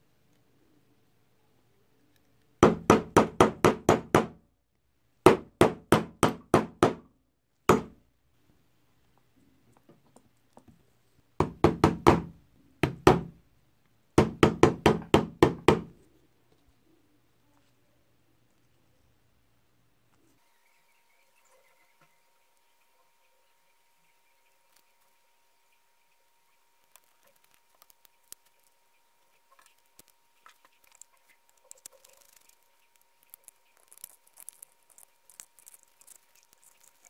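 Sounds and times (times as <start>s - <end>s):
hammer tapping: 5.3s - 7.1s, 7.7s - 8.0s.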